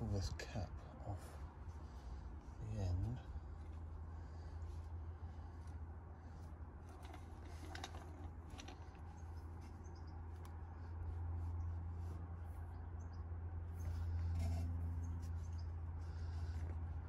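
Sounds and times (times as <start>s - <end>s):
low hum: 0.0s - 17.0s
plastic clicks and rustles: 6.9s - 9.3s.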